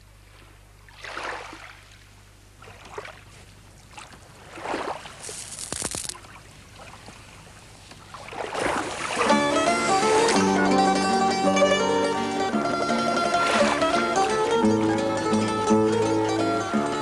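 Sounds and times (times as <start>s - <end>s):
small waves washing on shore: 0.2s - 10.6s.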